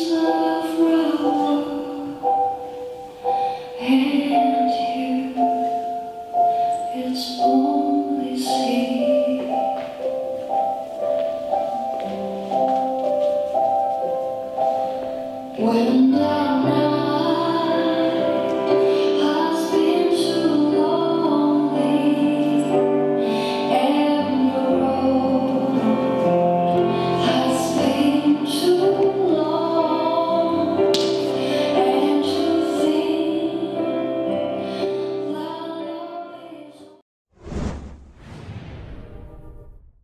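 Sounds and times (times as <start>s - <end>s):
woman singing with instruments: 0.0s - 9.9s, 15.6s - 37.0s.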